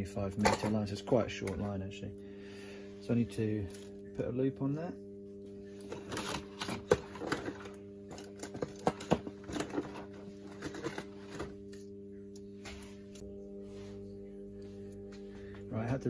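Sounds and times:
steady low hum: 0.0 - 16.0
objects clicking and clattering: 5.9 - 11.6.

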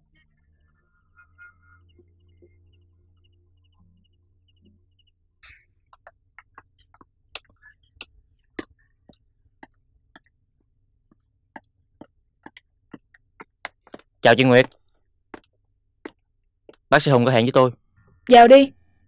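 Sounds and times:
crickets chirping: 0.2 - 5.3
footsteps on tiled floor: 11.1 - 14.8.

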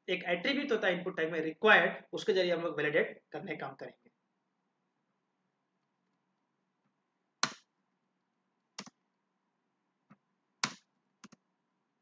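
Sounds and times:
mouse and keyboard clicking: 8.8 - 9.0, 10.6 - 11.4.

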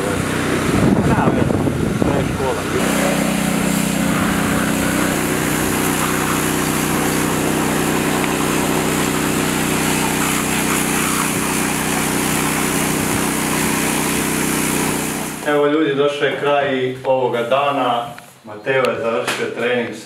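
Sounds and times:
pressure washer motor drone: 0.0 - 15.6
water jet spraying: 0.0 - 15.6.

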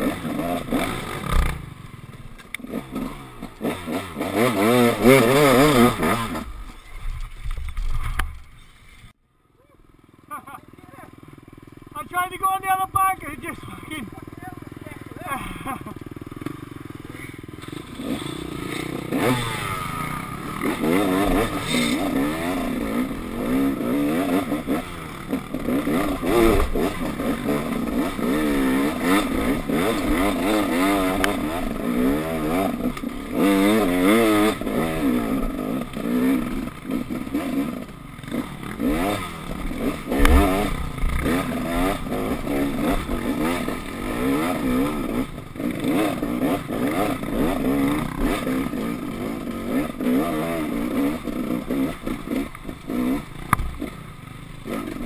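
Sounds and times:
motorcycle engine revving: 0.0 - 9.1, 9.8 - 55.0
sharp thump: 40.1 - 41.2, 53.5 - 53.8.

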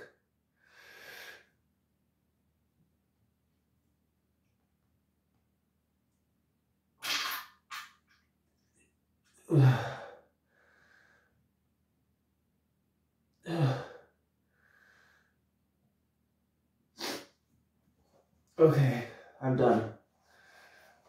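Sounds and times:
person groaning: 9.5 - 10.2, 13.4 - 14.0.

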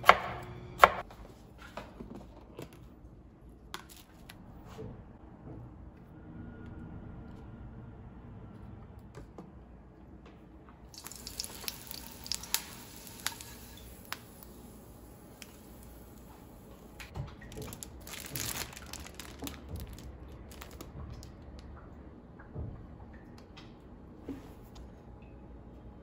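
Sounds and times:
crinkling rustle: 17.5 - 21.3.

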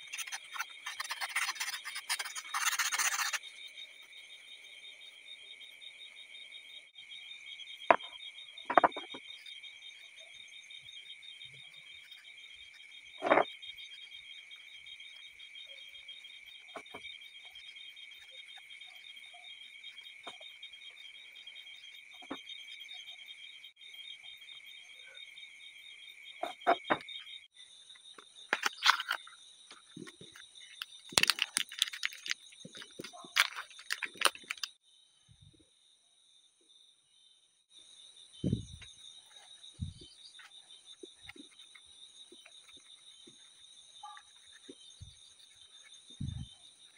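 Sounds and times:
insects trilling: 0.0 - 46.9
plastic wrapper crinkling and tearing: 31.1 - 34.7.

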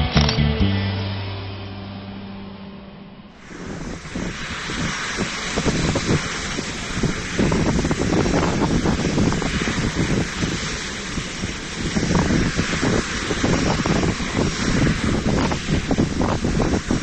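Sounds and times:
intro music: 0.0 - 3.4
distant jet engine roar: 2.4 - 17.0
wind buffeting microphone: 3.4 - 17.0.

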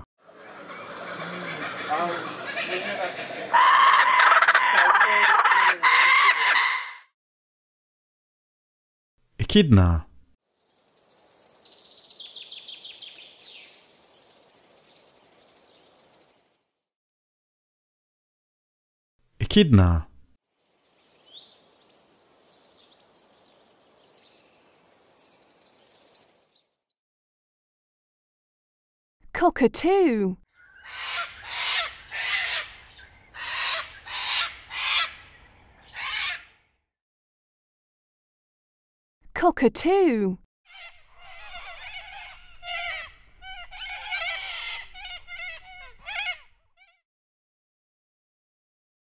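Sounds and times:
cockatoo screeching: 3.5 - 7.1, 30.6 - 36.6, 40.7 - 47.0
small birds chirping: 10.5 - 16.7, 20.6 - 26.9, 30.5 - 36.4, 40.7 - 47.0
faint outdoor hiss: 10.6 - 16.6, 20.6 - 26.6, 41.0 - 46.2.

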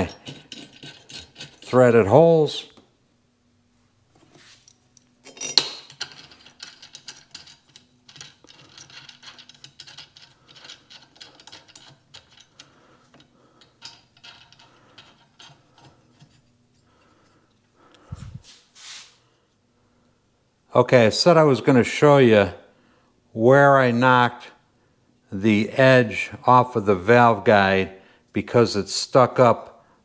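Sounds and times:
bolts clicking and rattling: 4.6 - 16.9
sharp metal clack: 5.3 - 6.0.

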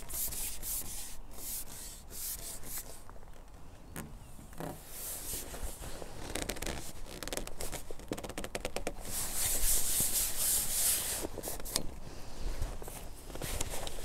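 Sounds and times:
close rustling and scraping: 0.0 - 14.0
small clicks and scratches: 0.1 - 10.2.

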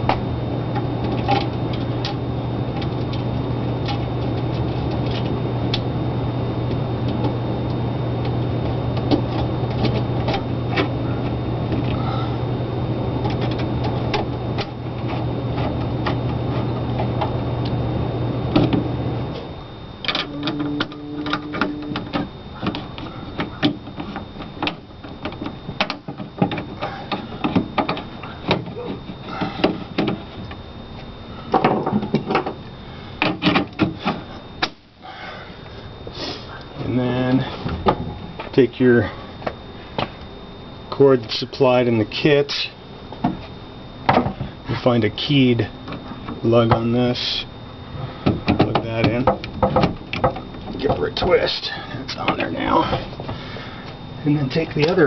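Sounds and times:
steady low hum: 0.0 - 55.0
clicks and knocks of handling plastic parts: 20.0 - 28.7, 33.2 - 34.8, 48.2 - 51.3.

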